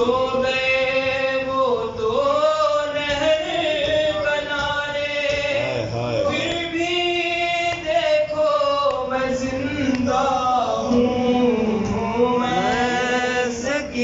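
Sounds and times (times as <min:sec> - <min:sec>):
man chanting a lament: 0:02.2 - 0:07.5, 0:10.6 - 0:14.0.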